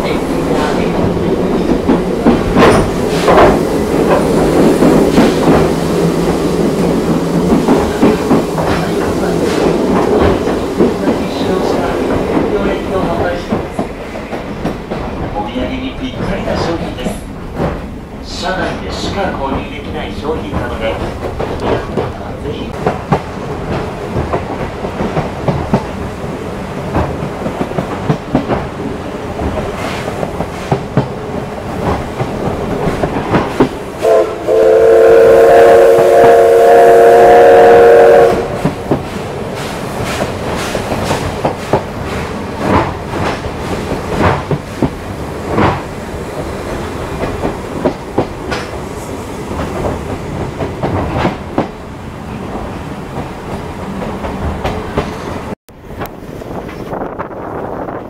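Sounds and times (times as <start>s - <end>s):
train wheels clicking over rail joints: 0.0s - 15.4s, 16.1s - 34.6s, 37.4s - 57.3s
locomotive whistle chord: 34.0s - 38.5s.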